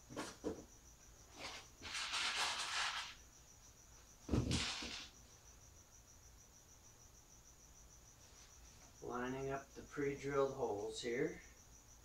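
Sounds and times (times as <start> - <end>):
scraping rustle on workbench: 1.3 - 3.2
thump on workbench: 4.3 - 5.0.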